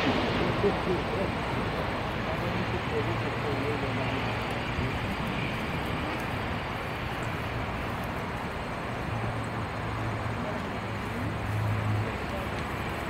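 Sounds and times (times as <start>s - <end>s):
jet engine rushing: 0.0s - 10.0s.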